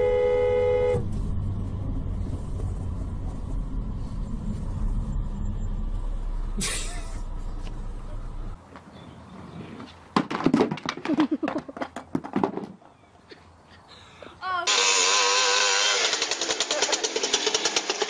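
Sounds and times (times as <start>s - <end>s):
people laughing: 11.0s - 11.9s, 16.4s - 17.4s
moped engine at high revs: 14.7s - 18.0s.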